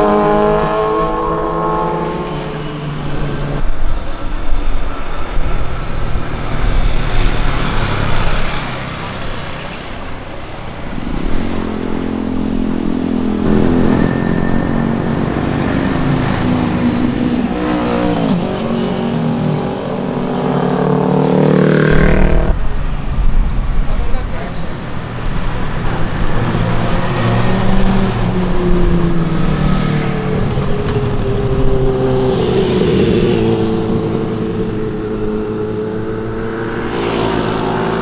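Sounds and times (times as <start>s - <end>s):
motorcycle engines passing: 5.0s - 38.0s
loud rushing sound: 10.4s - 38.0s.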